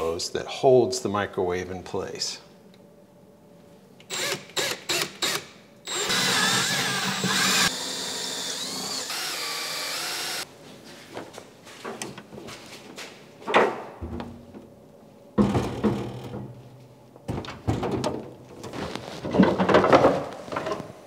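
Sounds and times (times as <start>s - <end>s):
power drill running: 4.1s - 10.4s.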